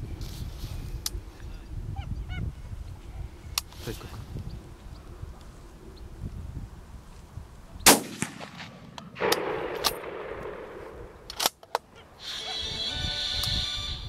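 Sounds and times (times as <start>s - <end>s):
gunshot: 7.9s - 11.0s.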